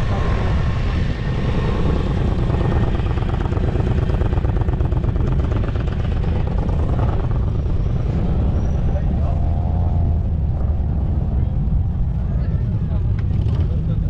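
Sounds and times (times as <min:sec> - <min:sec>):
motorcycle engine running: 0:01.4 - 0:08.8.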